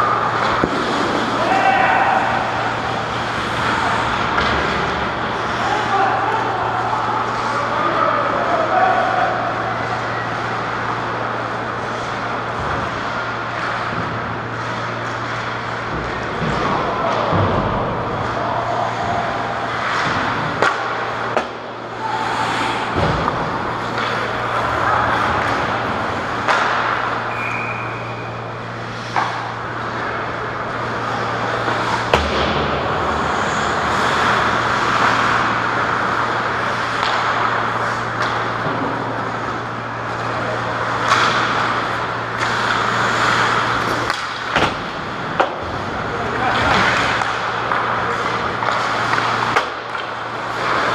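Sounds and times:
steady low hum: 0.0 - 50.9
hockey sticks and puck knocking: 19.9 - 21.6, 25.3 - 27.3, 31.4 - 39.6, 40.9 - 45.8, 46.6 - 50.9.

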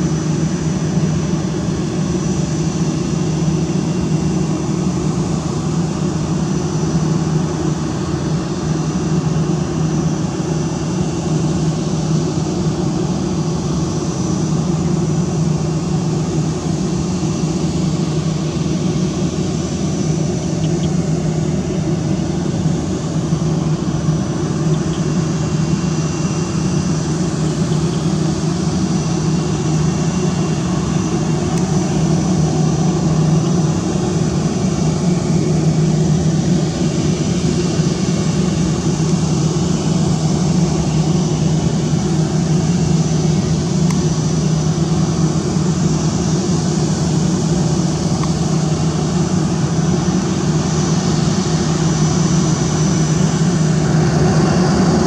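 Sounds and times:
jet engines humming: 0.0 - 55.0
thin high whine: 11.2 - 55.0.

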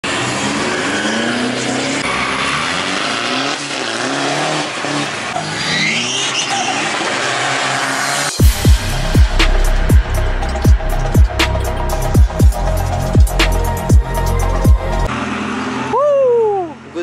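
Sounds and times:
drag vehicle engines revving: 0.0 - 17.0
deep bass music hit: 8.4 - 15.1.

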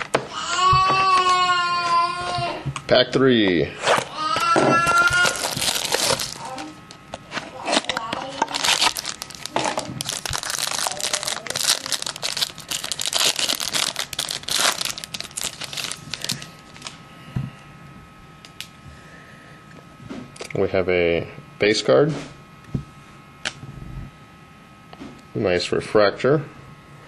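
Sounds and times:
plastic wrapper tearing and crinkling: 3.9 - 17.0.

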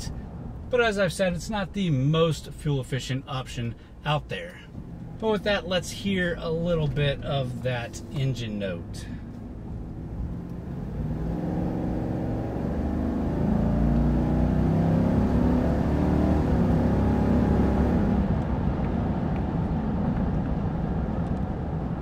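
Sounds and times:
car engine accelerating: 4.7 - 22.0.

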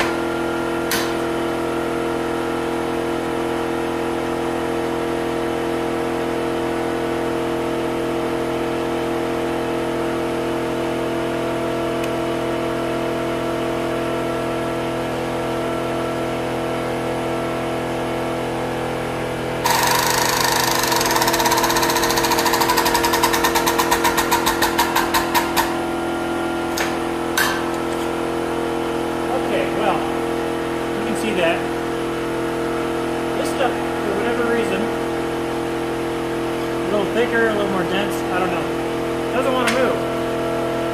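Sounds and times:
steady machine hum: 9.0 - 40.9
hydraulic pump pulsing: 19.6 - 25.8.

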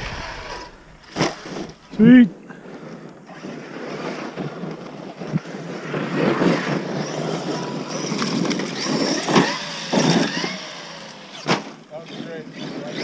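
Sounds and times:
electric motor whine: 0.0 - 2.0, 3.3 - 13.0
sharp thumps: 0.0 - 2.1
tyres on gravel: 0.0 - 2.3.

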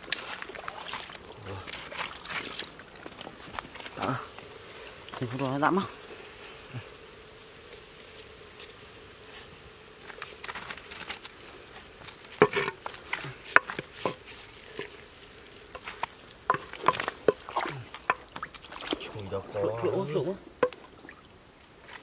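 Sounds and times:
soup boiling in pot: 0.0 - 5.9, 11.3 - 19.9
insect buzzing: 0.0 - 22.0.

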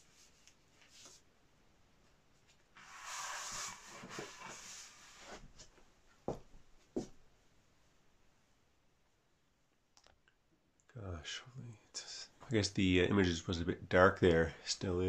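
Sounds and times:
paper sliding and rustling: 0.0 - 1.2, 2.8 - 5.7.

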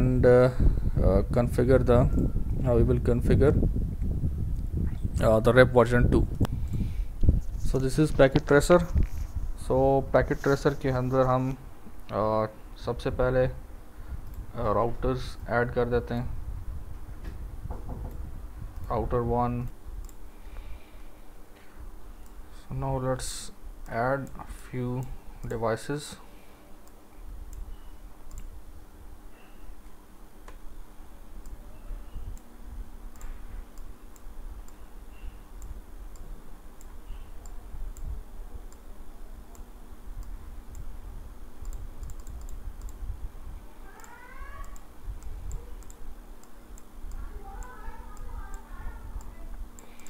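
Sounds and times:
computer mouse clicks: 26.8 - 28.5, 41.6 - 43.0, 44.0 - 50.0.

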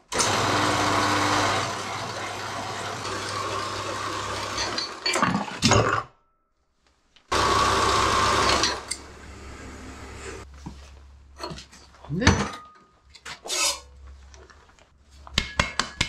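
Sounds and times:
bandsaw cutting steel: 0.1 - 5.2, 7.3 - 10.4.

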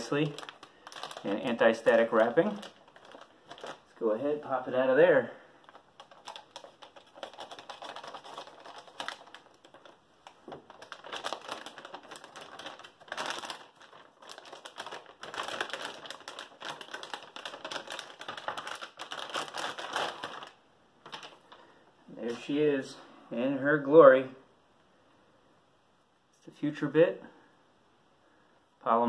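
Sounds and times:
plastic bag crinkling: 0.0 - 4.3, 5.3 - 22.6.

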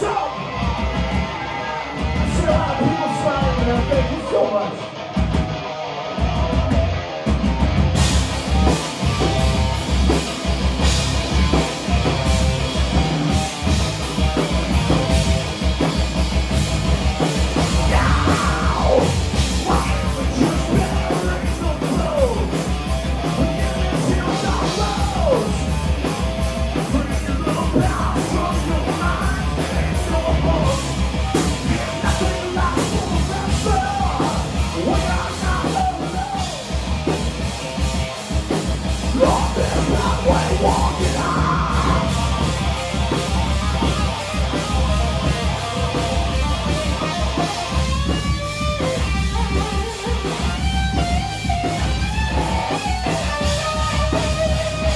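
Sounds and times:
person yelling vocals: 0.0 - 0.6, 1.3 - 4.8, 17.8 - 22.6, 31.7 - 36.6, 39.1 - 42.2
drum kit pounding: 0.0 - 4.4, 5.0 - 54.9
electric guitars: 0.0 - 54.9
heavy metal band playing live: 0.0 - 54.9.

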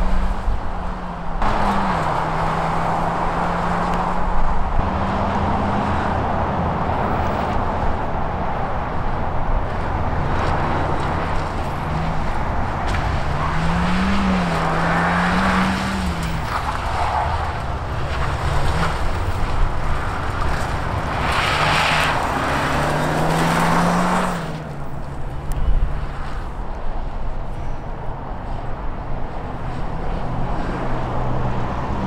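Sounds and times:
car engine revving: 0.0 - 7.3, 10.2 - 25.0.

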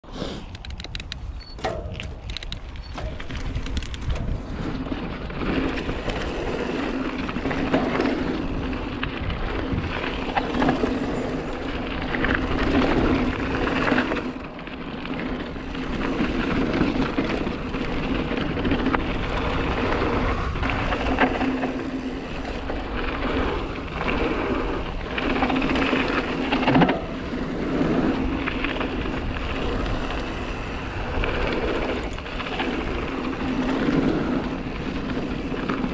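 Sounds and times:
bike tyres rolling on dirt: 0.3 - 35.9
wind on microphone: 0.5 - 6.6, 8.1 - 14.2, 15.7 - 21.4
bike knocks and rattles: 0.6 - 14.4.

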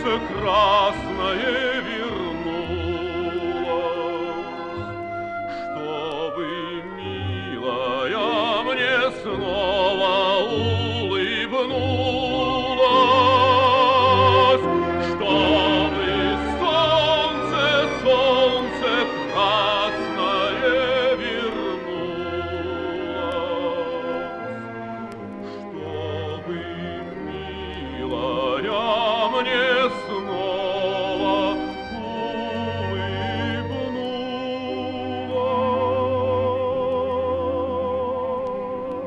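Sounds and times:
man singing operatically: 0.0 - 24.8, 25.5 - 39.0
instrumental accompaniment: 0.0 - 39.0.

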